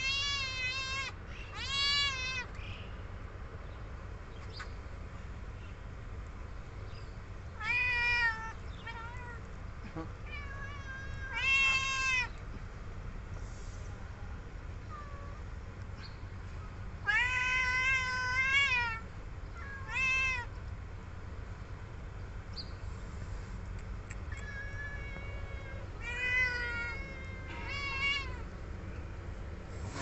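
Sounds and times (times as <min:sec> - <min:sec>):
cats meowing: 0:00.0 - 0:02.6, 0:07.6 - 0:09.5, 0:10.2 - 0:12.4, 0:17.0 - 0:20.5, 0:24.2 - 0:28.6.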